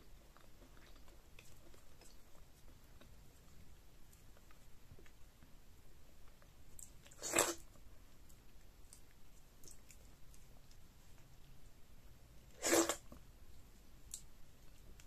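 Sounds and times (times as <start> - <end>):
loud slurp: 7.2 - 7.6, 12.6 - 13.0.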